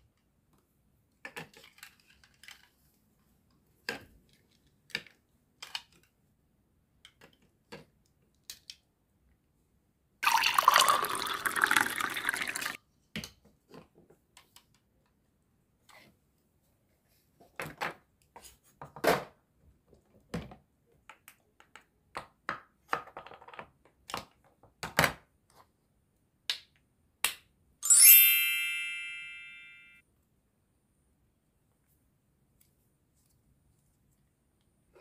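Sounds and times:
bright chime: 27.8s - 30.0s.

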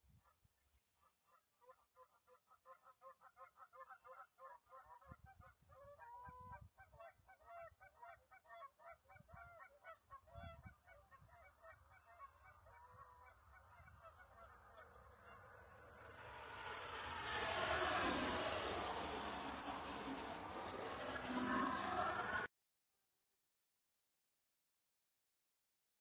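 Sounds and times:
wind rumble on microphone: 5.0s - 7.3s, 9.1s - 9.6s, 10.2s - 11.5s
geese honking: 7.0s - 15.8s.

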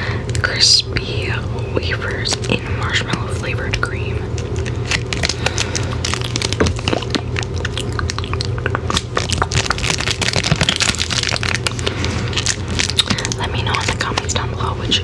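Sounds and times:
plastic wrapper crinkling: 3.9s - 14.7s.

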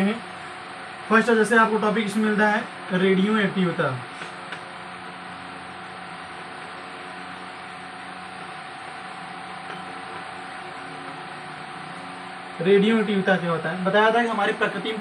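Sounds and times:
mechanical hum with whine: 0.0s - 15.0s.

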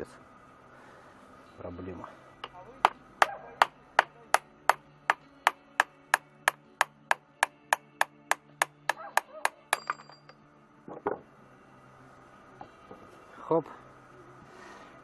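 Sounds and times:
hammer tapping on metal shaft: 2.4s - 10.4s.

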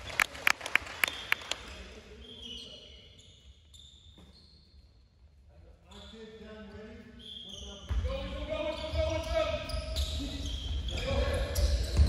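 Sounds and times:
hand claps: 0.0s - 1.8s
shoes squeaking on floor: 2.2s - 5.0s, 5.9s - 12.0s.

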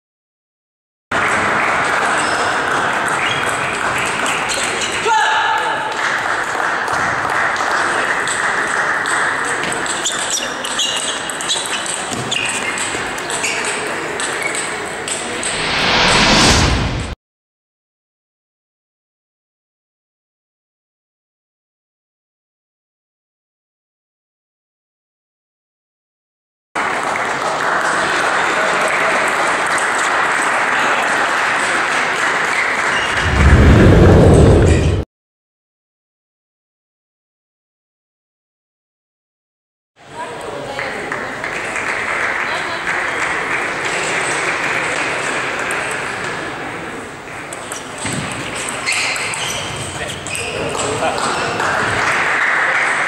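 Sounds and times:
sports hall hubbub: 1.1s - 15.6s, 26.8s - 33.2s, 40.0s - 53.0s
spectators applauding: 1.2s - 4.8s, 5.9s - 9.7s, 26.8s - 33.2s, 41.1s - 45.9s, 50.8s - 53.0s
deep rumble: 15.3s - 17.2s, 33.1s - 35.0s.

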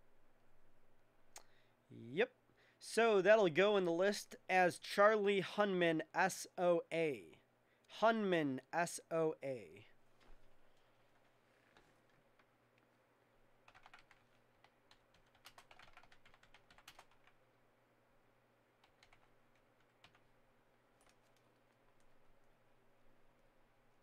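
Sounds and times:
typing on computer keyboard: 13.6s - 17.4s, 18.8s - 20.3s, 21.0s - 22.2s.

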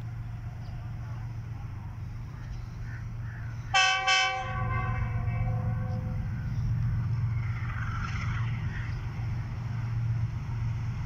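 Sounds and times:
freight train rumbling: 0.0s - 11.0s
locomotive horn blasts: 3.7s - 6.2s.

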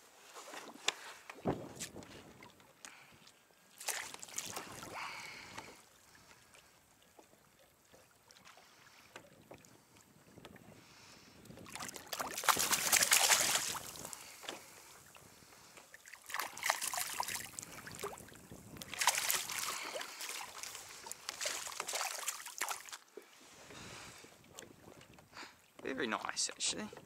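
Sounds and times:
fish splashing in water: 3.8s - 5.5s, 11.7s - 14.8s, 16.0s - 23.0s.

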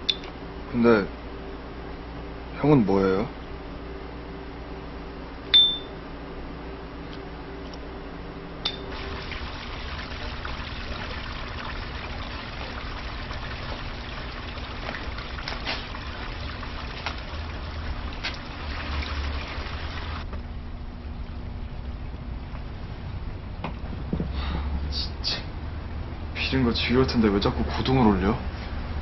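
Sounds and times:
water-like hiss: 15.5s - 16.0s.

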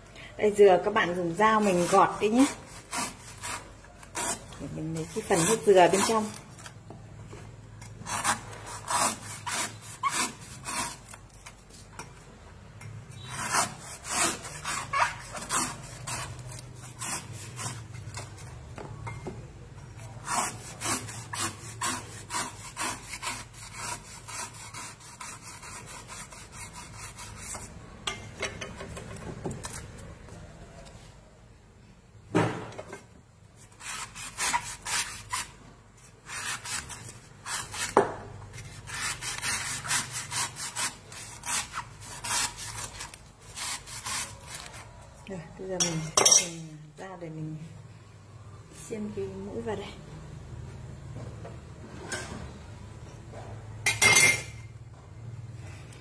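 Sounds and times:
knife scraping coconut husk: 1.1s - 6.8s, 7.8s - 11.9s, 13.0s - 18.6s, 19.9s - 27.8s, 33.6s - 45.0s.

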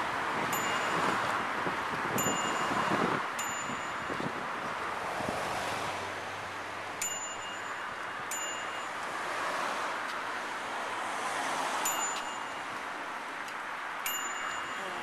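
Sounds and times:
small bell dinging: 0.5s - 1.3s, 2.2s - 4.2s, 7.0s - 9.1s, 11.8s - 12.8s, 14.0s - 15.0s.

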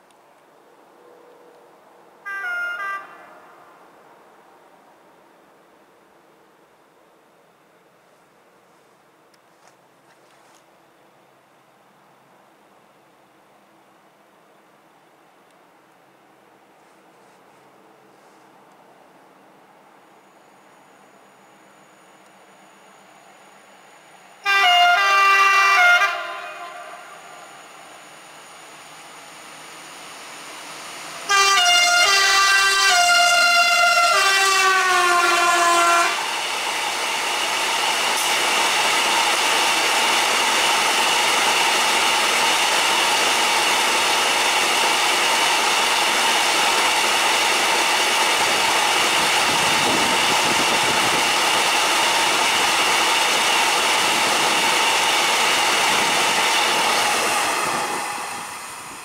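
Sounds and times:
locomotive horn blast: 2.3s - 3.5s, 24.4s - 27.6s, 31.2s - 36.3s
train wagons rolling past: 19.3s - 59.0s.

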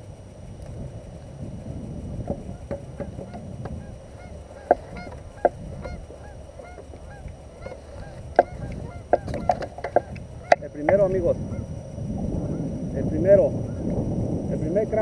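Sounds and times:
geese honking: 2.3s - 12.7s.

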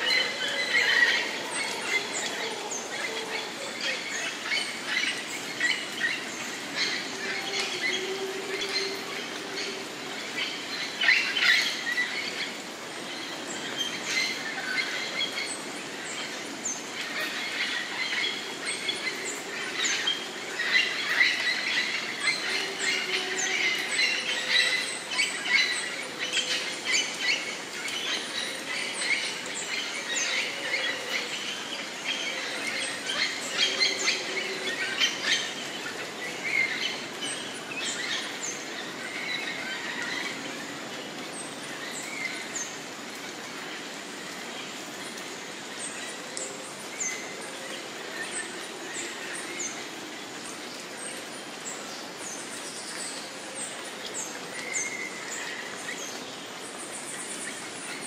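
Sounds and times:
background hiss: 0.0s - 58.0s
birds chirping: 0.0s - 58.0s.

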